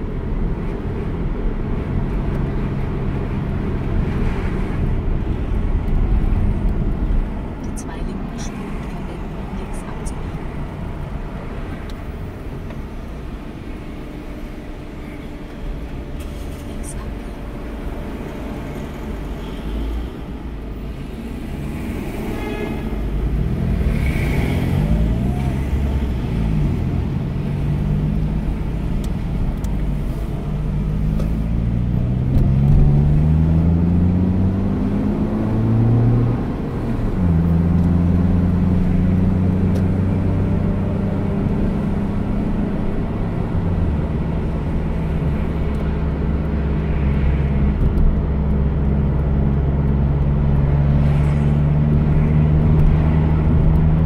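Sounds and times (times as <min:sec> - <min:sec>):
road noise: 0:00.0 - 0:54.0
car engine accelerating: 0:23.0 - 0:54.0.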